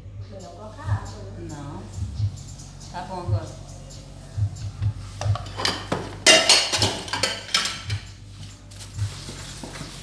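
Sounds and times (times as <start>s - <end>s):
dishes clinking in a sink: 5.2s - 8.1s.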